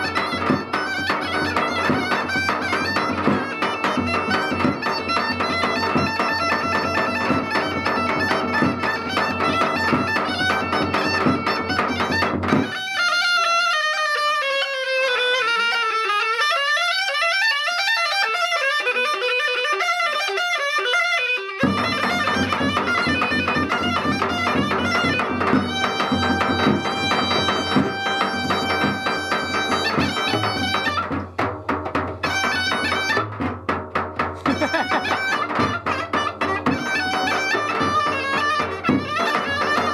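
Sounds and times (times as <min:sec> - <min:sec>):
small frame drum: 0:00.0 - 0:13.0, 0:21.6 - 0:39.9
bagpipe playing folk tune: 0:00.0 - 0:31.2, 0:32.2 - 0:33.4, 0:34.4 - 0:39.9
bass drum beaten with stick: 0:21.6 - 0:39.9.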